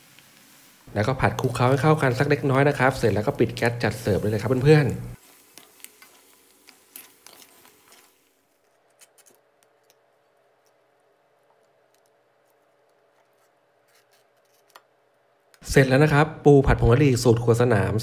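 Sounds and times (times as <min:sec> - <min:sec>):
faint scrapes of stir-frying in a wok: 0:00.0 - 0:09.2.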